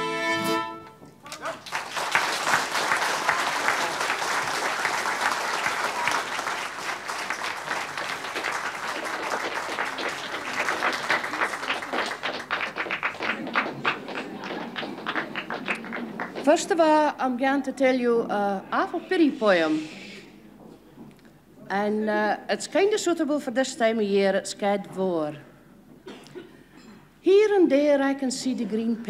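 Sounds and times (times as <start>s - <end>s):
audience applauding: 1.3s - 16.7s.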